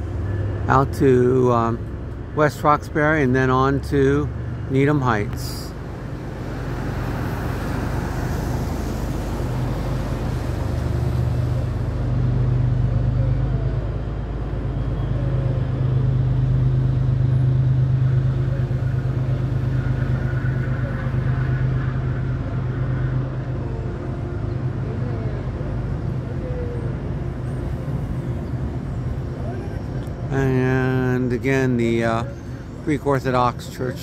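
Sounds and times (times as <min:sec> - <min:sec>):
diesel locomotive engine drone: 0:00.0 - 0:34.0
car passing on wet road: 0:05.9 - 0:11.9.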